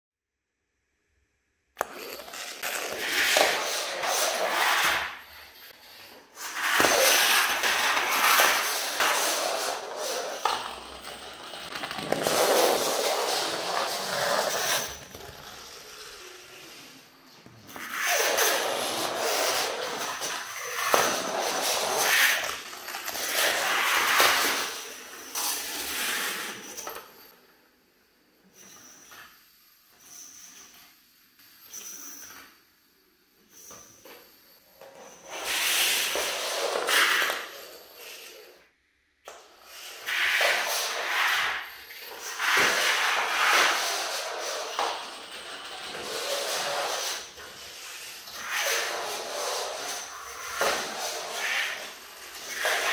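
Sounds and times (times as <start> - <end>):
toy train scraping and rattling on wire: 1.8 - 27.3, 34.8 - 38.6, 39.6 - 52.9
hiss of magnetic toy train: 39.3 - 52.9.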